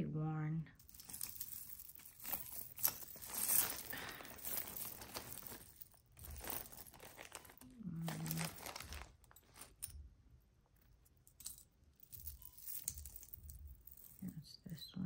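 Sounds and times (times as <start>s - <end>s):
plastic bag crinkling: 0.8s - 9.9s
metal jewelry clinking: 0.8s - 14.8s.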